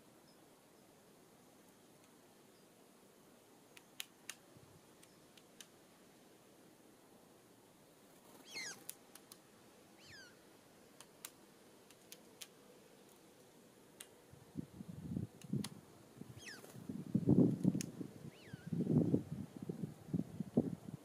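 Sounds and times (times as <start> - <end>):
downward-sliding bird calls: 8.4 - 8.9, 10.0 - 10.4, 16.4 - 16.7.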